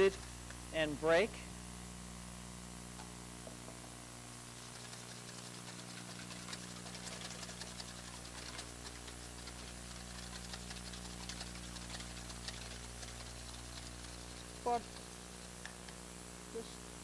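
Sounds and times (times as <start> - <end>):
steady low hum: 0.0 - 17.0
whisk clicking against steel bowl: 4.9 - 13.9.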